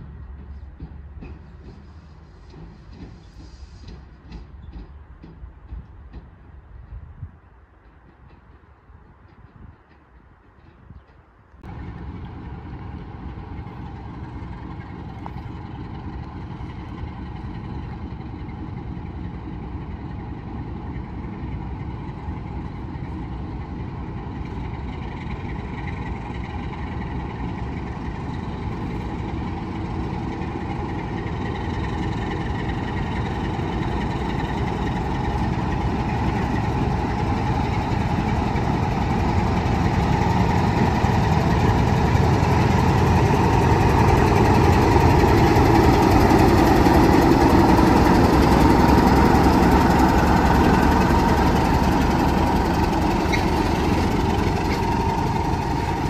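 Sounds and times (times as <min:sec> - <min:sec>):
railway locomotive engine running: 0:00.0 - 0:56.0.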